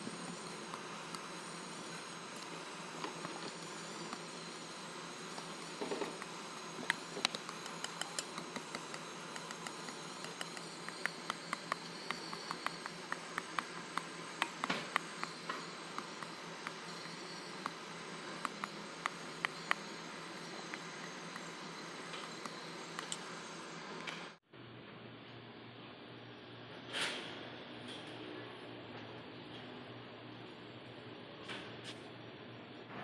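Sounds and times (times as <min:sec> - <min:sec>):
steady hiss: 0:00.0 - 0:24.4.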